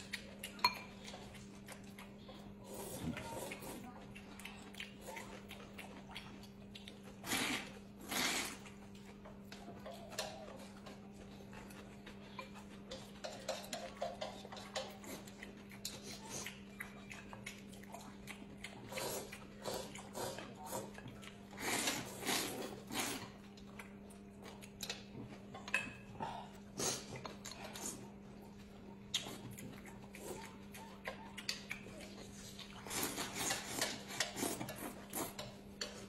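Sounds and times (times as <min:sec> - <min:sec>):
wet chewing clicks: 0:00.0 - 0:26.1, 0:26.8 - 0:36.0
noodles being slurped: 0:07.1 - 0:08.8, 0:18.8 - 0:23.4.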